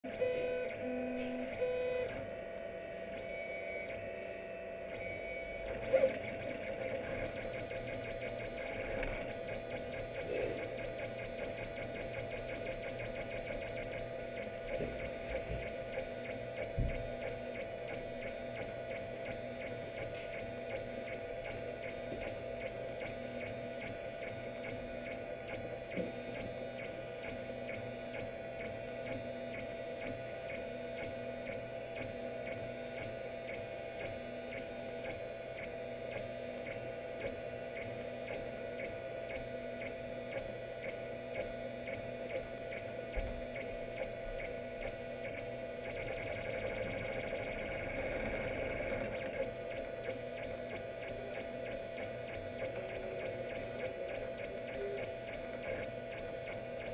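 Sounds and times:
stepper motors whirring: 0:05.0 - 0:27.1, 0:41.8 - 0:56.8.

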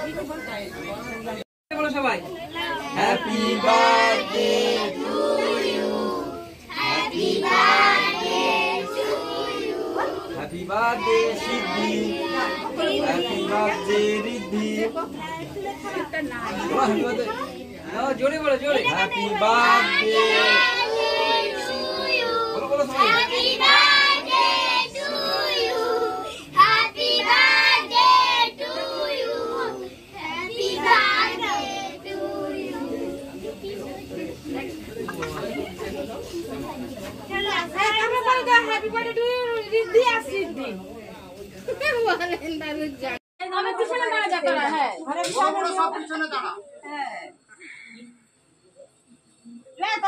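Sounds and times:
children singing in chorus: 0:19.7 - 0:33.2.

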